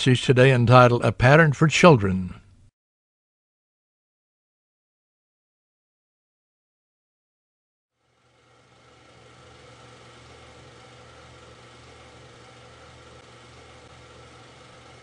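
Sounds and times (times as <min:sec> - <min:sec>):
steady low hum: 0:08.0 - 0:15.0.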